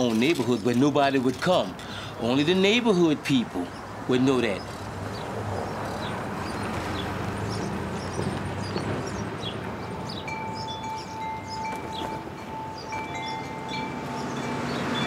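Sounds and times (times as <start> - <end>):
metal tube wind chime ringing: 9.8 - 15.0.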